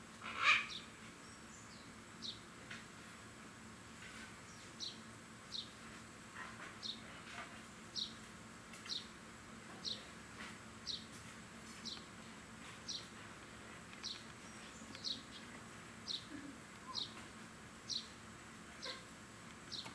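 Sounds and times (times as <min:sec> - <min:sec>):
outdoor background noise: 0:00.0 - 0:19.9.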